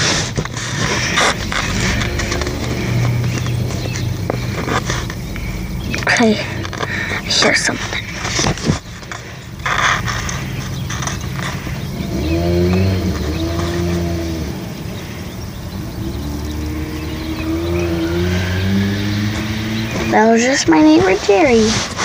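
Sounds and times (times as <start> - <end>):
vehicle engine humming: 0.0 - 22.0.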